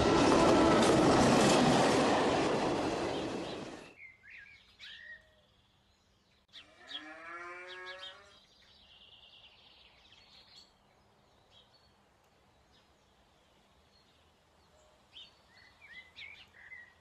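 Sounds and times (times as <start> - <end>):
cow mooing: 6.8 - 8.4.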